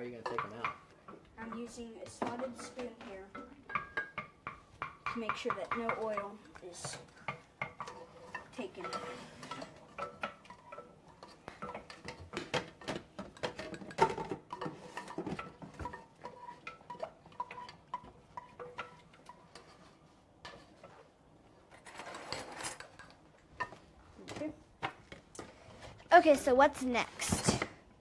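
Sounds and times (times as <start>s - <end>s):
metal spoon scraping a pan: 1.4s - 12.8s, 13.4s - 21.1s, 21.7s - 23.2s.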